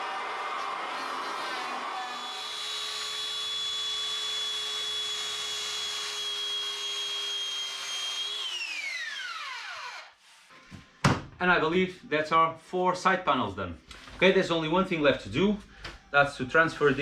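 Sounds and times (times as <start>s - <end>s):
power tool cutting plywood: 0.0s - 10.2s
power tool spinning down: 0.0s - 10.2s
power tool whining: 0.0s - 10.2s.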